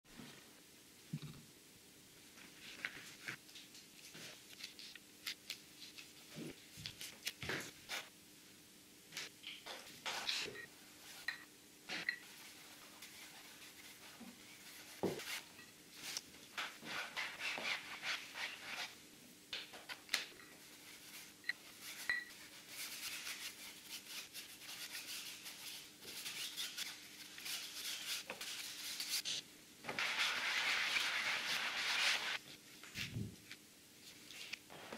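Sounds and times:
cloth rubbing on board: 0:29.9 - 0:32.4.

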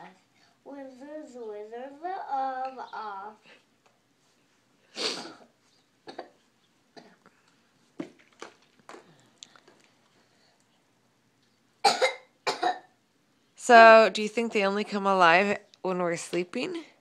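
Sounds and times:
person coughing: 0:11.8 - 0:12.9.

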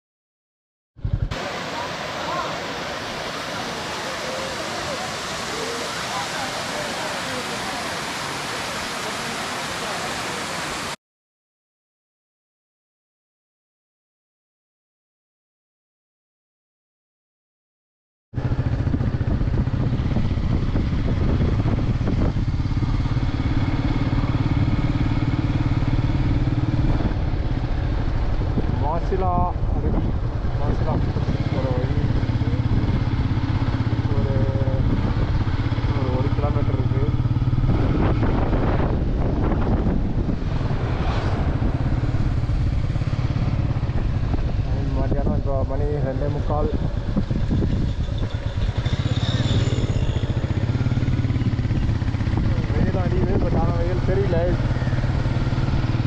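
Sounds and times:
motorcycle engine running: 0:01.0 - 0:01.9, 0:18.4 - 0:56.0
wind: 0:01.0 - 0:11.0, 0:18.4 - 0:56.0.

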